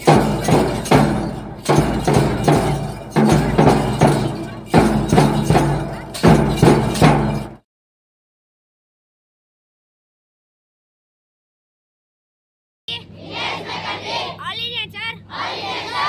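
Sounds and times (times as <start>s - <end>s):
bass drum strokes: 0.0s - 7.6s
cymbals: 0.0s - 7.6s
snare drum: 0.0s - 7.6s.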